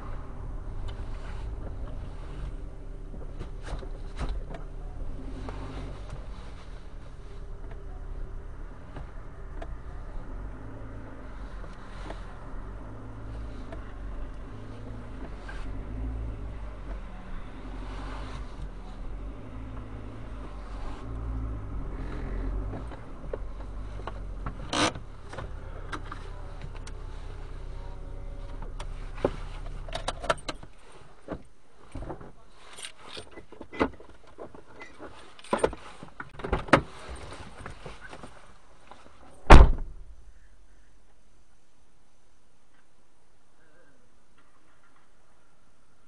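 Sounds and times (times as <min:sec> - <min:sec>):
car engine running at low revs: 0:00.0 - 0:43.8
loud thump: 0:39.5 - 0:40.1.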